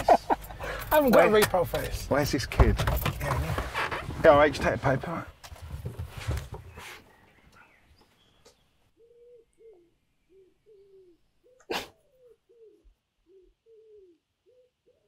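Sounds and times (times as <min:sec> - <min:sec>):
pigeon cooing: 0:09.0 - 0:15.0.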